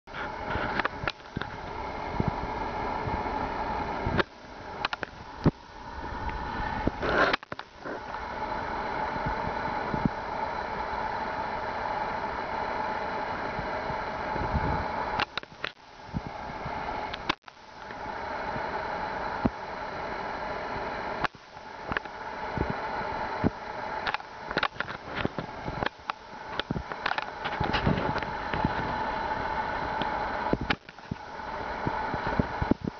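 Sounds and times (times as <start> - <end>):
mechanical hum and hiss: 0.1 - 32.9
sharp clicks and knocks: 4.2 - 5.6, 17.1 - 18.0.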